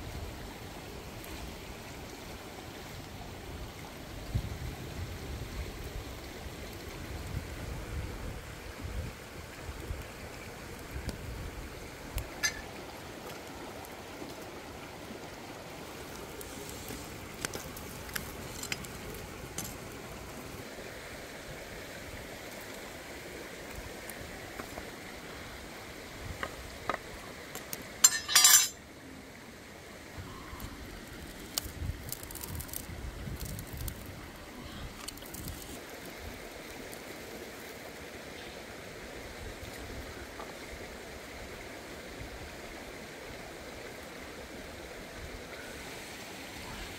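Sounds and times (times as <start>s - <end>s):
stream rushing over rocks: 0.0s - 46.9s
wood and bamboo knocking on stones: 28.0s - 28.8s.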